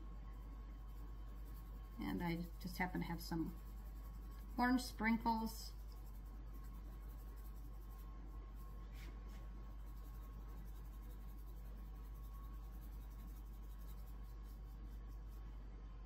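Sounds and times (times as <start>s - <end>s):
steady low hum: 0.0s - 16.0s
sprinkles rattling in shaker: 0.9s - 8.1s.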